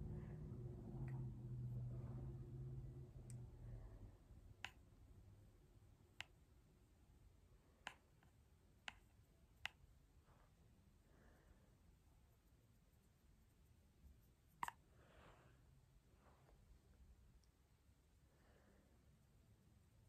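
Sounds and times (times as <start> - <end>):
low hum: 0.0 - 20.0
faint sharp clicks: 6.2 - 6.4, 7.8 - 9.8.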